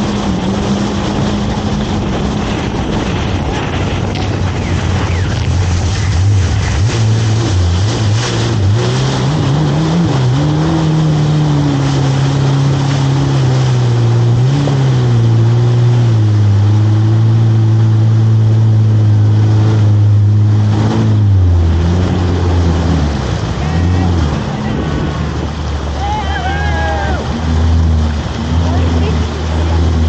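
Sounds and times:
jet ski engine: 0.0 - 30.0
rushing water and spray: 0.0 - 30.0.

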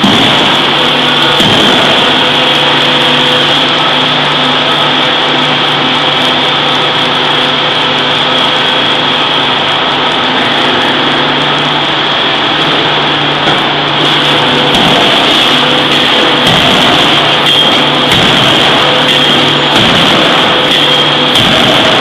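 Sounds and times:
machinery drone with whine: 0.0 - 22.0.

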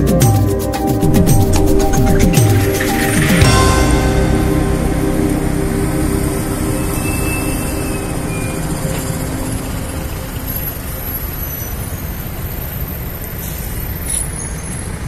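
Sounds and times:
background music: 0.0 - 12.0
city road traffic rumble: 0.9 - 15.0.

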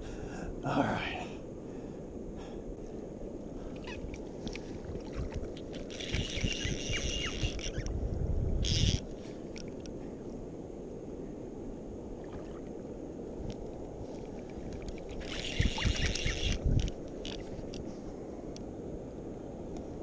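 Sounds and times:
wind on microphone: 1.4 - 20.0
fishing reel whirring: 5.6 - 7.9, 8.6 - 9.7, 14.9 - 17.8.

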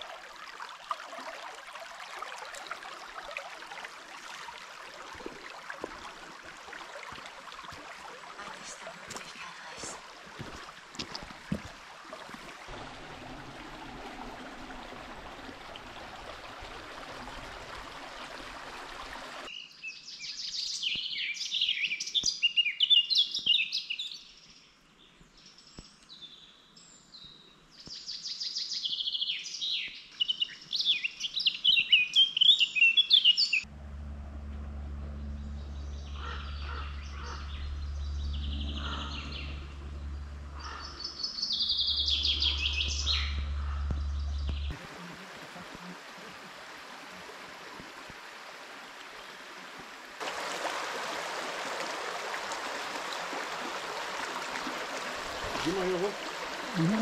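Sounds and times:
babbling stream water: 0.0 - 22.1, 35.4 - 57.0
low steady hum: 12.7 - 18.1, 33.6 - 45.5
songbird chirping: 19.5 - 44.8
faint bird calls: 35.4 - 44.7.

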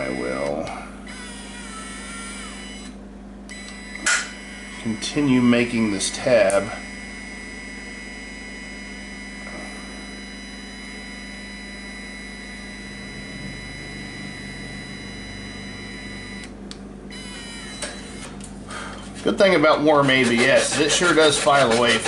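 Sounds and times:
low motor hum: 0.0 - 22.0
thin high whine: 8.6 - 16.6.

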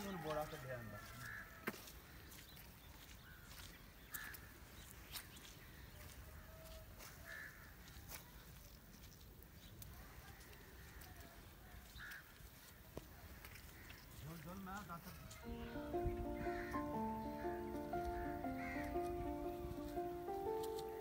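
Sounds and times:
distant bird calls: 15.3 - 21.0.

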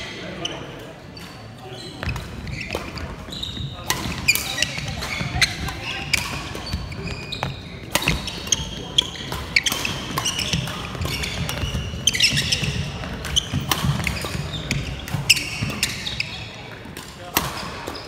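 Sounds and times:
shoes squeaking on floor: 0.0 - 16.7
rackets striking shuttlecock: 3.8 - 16.0.

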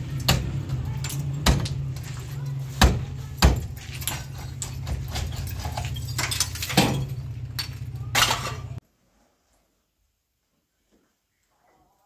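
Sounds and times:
bricks knocking and clinking: 0.2 - 8.8.

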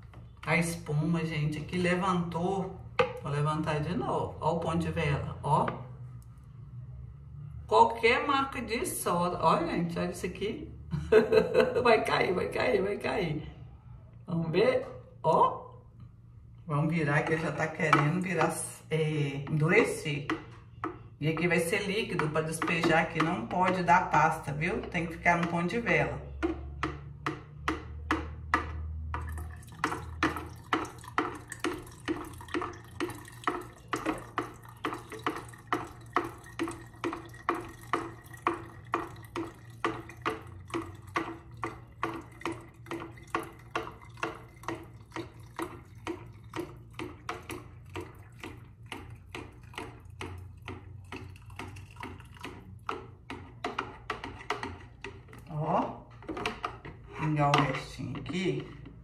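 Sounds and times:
water glugging through funnel: 16.7 - 59.0.

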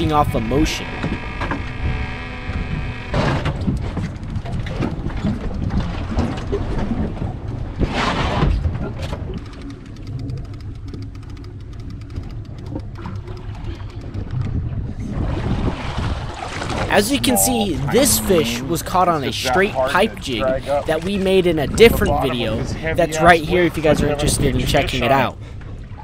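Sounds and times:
water slapping around boat: 0.0 - 26.0
wind buffeting microphone: 12.6 - 18.5, 20.4 - 26.0.

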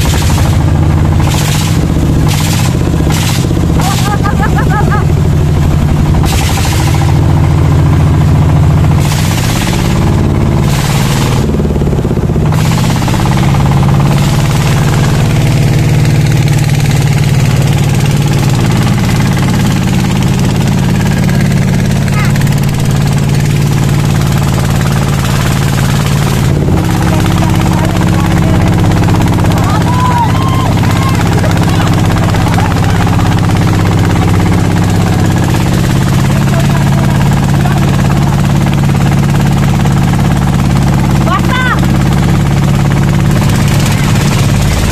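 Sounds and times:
small boat engine running: 0.0 - 44.9
water rushing: 5.0 - 7.8, 9.0 - 10.0, 40.5 - 44.9.

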